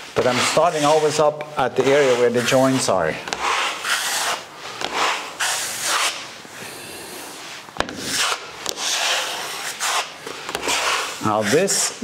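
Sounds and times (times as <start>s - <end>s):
taping knife scraping plasterboard: 0.1s - 6.3s, 7.8s - 12.0s.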